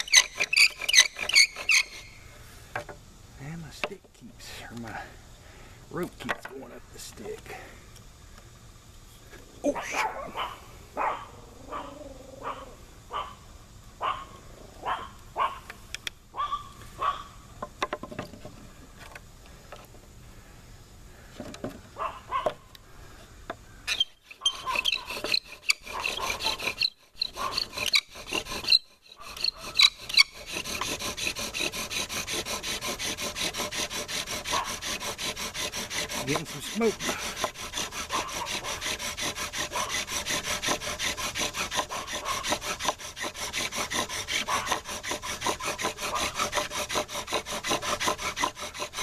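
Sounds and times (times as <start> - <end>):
bow drill spindle rasping: 0.0 - 2.2, 23.9 - 49.0.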